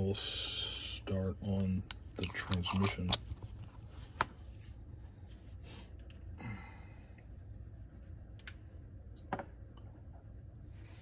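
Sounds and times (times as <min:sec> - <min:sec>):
person sighing: 0:06.4 - 0:07.0.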